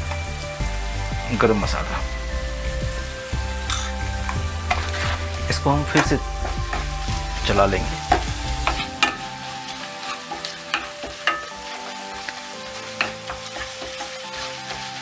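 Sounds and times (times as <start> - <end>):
steady sizzle: 0.0 - 15.0
spatula stirring and scraping pan: 3.6 - 15.0.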